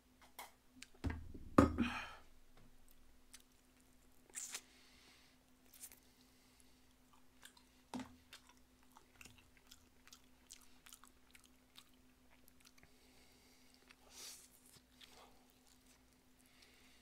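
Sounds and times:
faint steady hum: 0:00.0 - 0:17.0
mouth chewing crunchy food: 0:03.3 - 0:04.7, 0:06.8 - 0:13.0.

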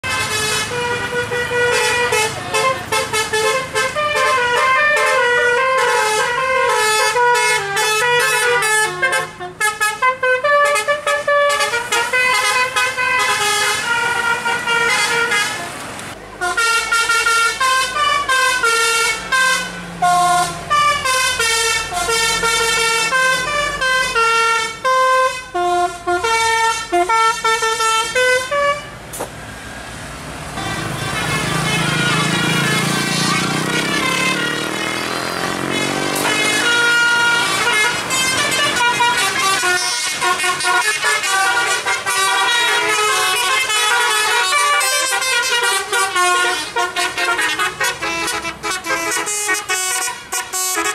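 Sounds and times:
air horn playing a tune: 0:00.0 - 0:15.8, 0:16.4 - 0:29.0, 0:30.6 - 0:50.9.

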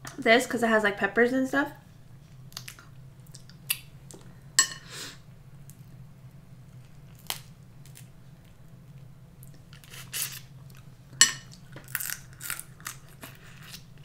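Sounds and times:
low steady hum: 0:00.0 - 0:14.0
crab shells cracking: 0:06.8 - 0:08.1, 0:11.5 - 0:13.9.

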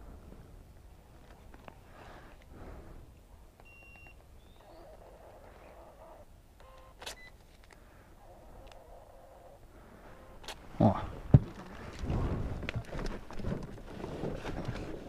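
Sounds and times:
payment terminal beeping: 0:06.6 - 0:07.3.

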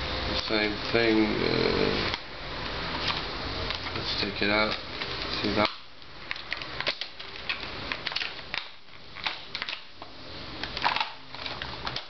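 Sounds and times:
plastic packaging clicks and crackles: 0:03.0 - 0:12.0.

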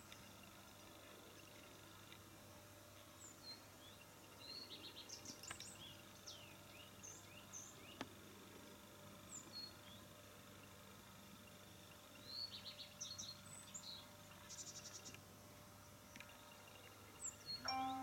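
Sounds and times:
songbirds chirping and whistling: 0:03.1 - 0:08.0, 0:09.3 - 0:10.1, 0:11.5 - 0:15.2, 0:16.1 - 0:18.0.

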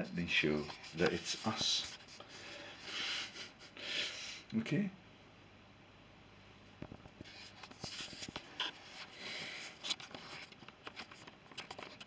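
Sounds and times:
scratchy rustles: 0:00.5 - 0:02.8, 0:07.2 - 0:12.0
fingers rubbing on phone: 0:00.6 - 0:03.0, 0:07.2 - 0:12.0.

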